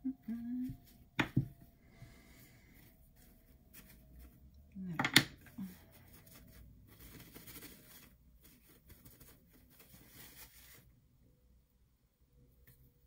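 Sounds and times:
paper rustling: 0:02.7 - 0:04.5, 0:05.4 - 0:10.9.

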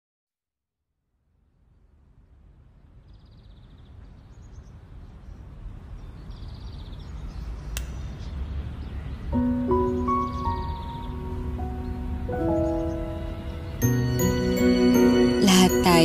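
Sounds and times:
high chirping trills: 0:06.2 - 0:16.0
sharp click: 0:07.7 - 0:08.0.

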